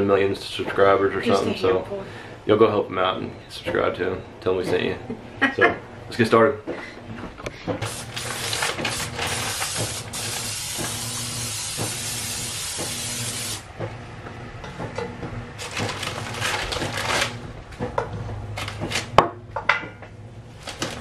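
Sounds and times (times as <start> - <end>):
plastic bag crinkling: 7.8 - 9.9, 15.6 - 17.4, 20.5 - 21.0
aerosol spray hissing: 7.9 - 13.6.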